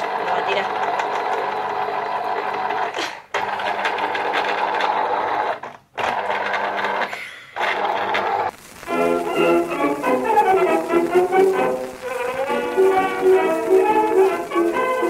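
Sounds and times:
juicer motor whirring: 0:00.0 - 0:08.5.

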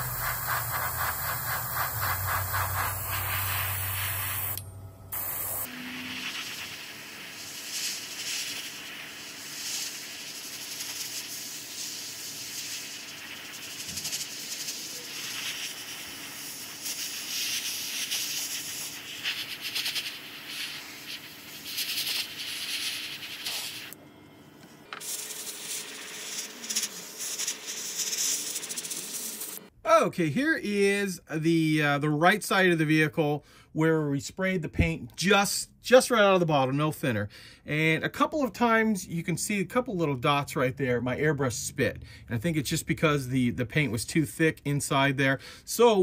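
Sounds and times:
airbrush air hissing: 0:00.0 - 0:24.0, 0:24.9 - 0:29.7.

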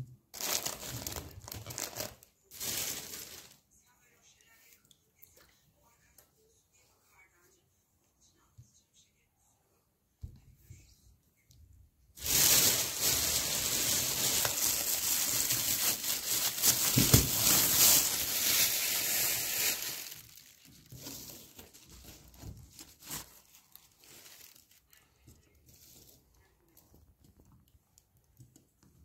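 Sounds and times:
crinkling and rustling: 0:00.3 - 0:03.7, 0:12.2 - 0:29.0.

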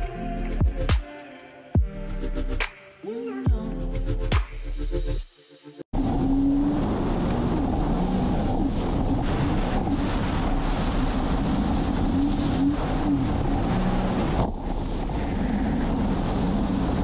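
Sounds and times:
water noise: 0:06.3 - 0:17.0
wind rush on microphone: 0:06.4 - 0:17.0.

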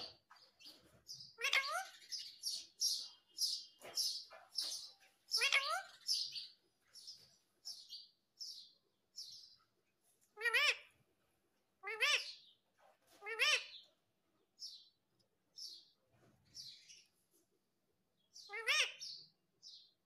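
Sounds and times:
parakeet chirping: 0:00.0 - 0:09.6, 0:10.4 - 0:11.0, 0:11.8 - 0:12.6, 0:13.2 - 0:13.9, 0:18.4 - 0:20.0.

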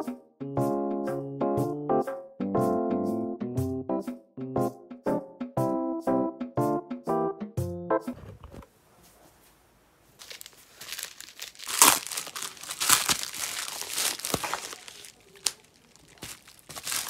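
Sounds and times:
plastic mailer crinkling and tearing: 0:10.2 - 0:17.0.

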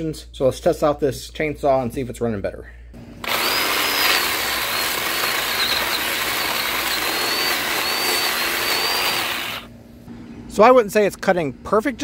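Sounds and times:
chainsaw cutting a log: 0:03.2 - 0:09.7.

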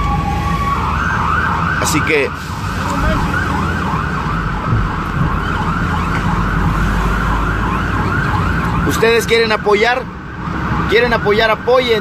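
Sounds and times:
siren in fast yelp: 0:00.0 - 0:09.5
vehicle rumble from inside cabin: 0:02.7 - 0:07.1.

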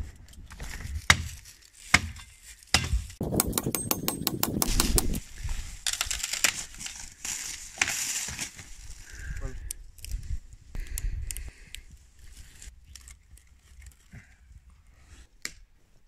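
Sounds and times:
footsteps crunching in dry leaves: 0:05.2 - 0:09.0.

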